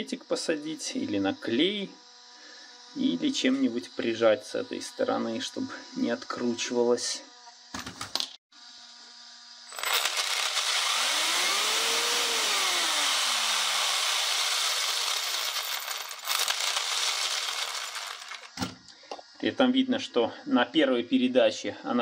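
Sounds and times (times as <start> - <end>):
electric motor and gears whirring: 9.4 - 18.9.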